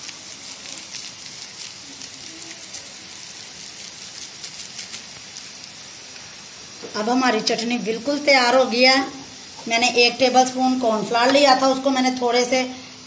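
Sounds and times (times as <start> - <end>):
chutney boiling in a pan: 0.0 - 13.0.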